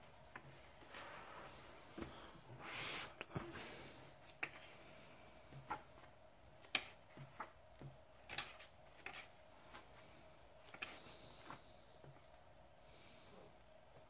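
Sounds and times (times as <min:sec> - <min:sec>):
paper pages turning: 0:08.2 - 0:09.9, 0:10.6 - 0:11.7.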